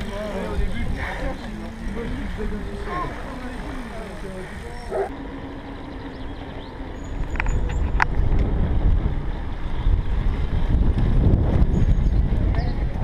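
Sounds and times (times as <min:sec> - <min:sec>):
wind buffeting microphone: 0:00.0 - 0:05.2, 0:05.8 - 0:13.0
tyre noise on road: 0:00.0 - 0:13.0.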